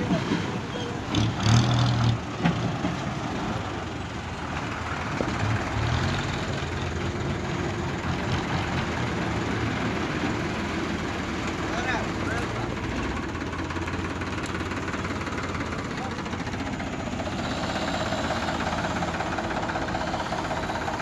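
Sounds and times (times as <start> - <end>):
diesel bus engine passing: 0.0 - 21.0.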